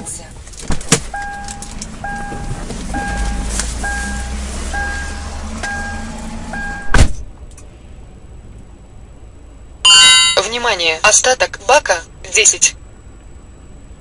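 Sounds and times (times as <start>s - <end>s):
engine and road rumble: 0.0s - 14.0s
car warning beeper two-note tone: 1.2s - 7.0s, 9.9s - 10.5s.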